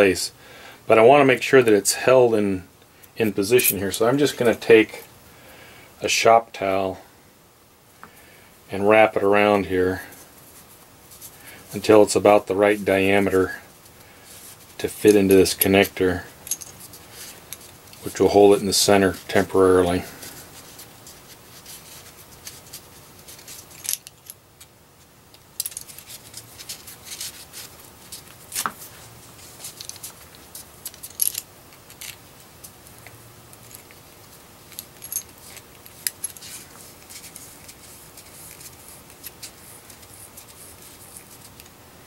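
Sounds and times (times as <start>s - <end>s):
metal parts clicking: 23.4s - 24.7s, 25.6s - 27.3s, 29.6s - 32.2s, 34.7s - 37.3s.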